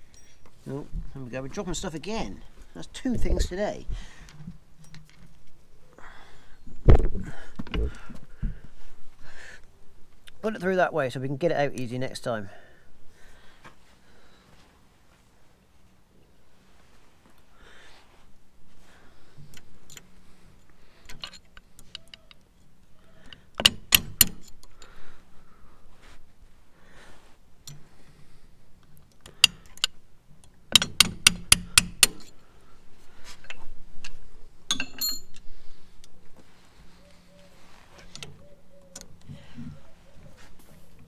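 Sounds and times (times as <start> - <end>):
ringing metal clink: 0.0 - 0.5, 34.7 - 35.4
metal-on-metal clicks and taps: 21.0 - 22.4, 23.3 - 24.9, 27.6 - 27.9, 28.8 - 32.3, 33.4 - 36.2.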